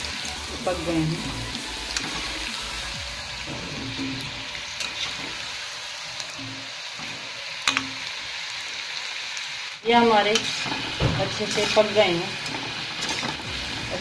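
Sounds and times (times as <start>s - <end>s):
hot oil sizzling: 0.0s - 14.0s
metal spoon clinking on pan: 7.6s - 8.0s, 10.4s - 13.5s.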